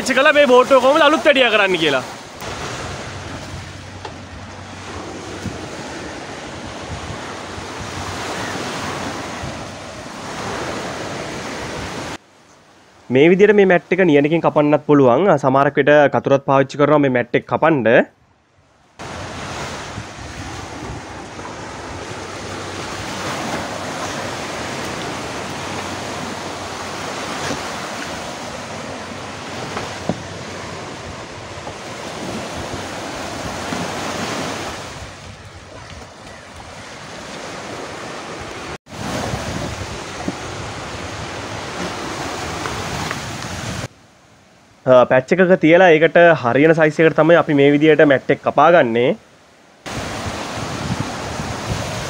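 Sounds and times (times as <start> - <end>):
wind blowing on microphone: 0.0 - 12.2, 19.0 - 43.9, 49.9 - 52.0
sea waves washing onto beach: 0.0 - 13.1, 19.0 - 44.8, 49.2 - 52.0.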